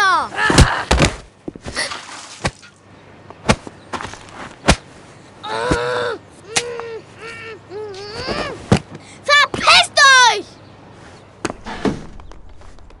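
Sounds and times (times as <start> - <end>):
child crying: 5.4 - 8.6.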